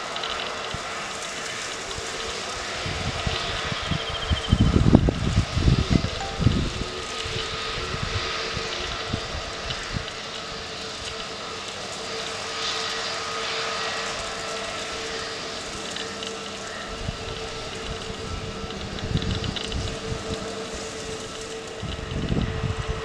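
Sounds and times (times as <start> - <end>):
jet engines running: 0.0 - 23.0.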